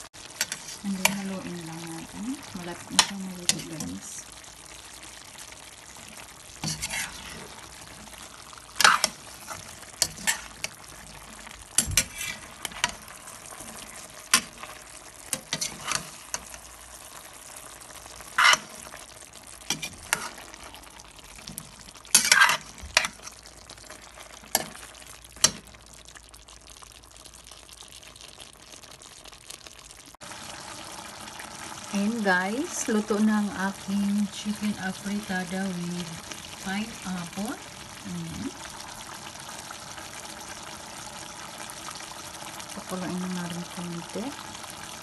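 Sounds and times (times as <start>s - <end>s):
faint sizzle: 0.0s - 45.0s
spatula scraping metal pot: 6.6s - 7.7s, 8.8s - 10.8s, 11.8s - 13.1s, 15.3s - 16.6s, 18.3s - 18.9s, 19.7s - 20.5s, 22.1s - 23.4s.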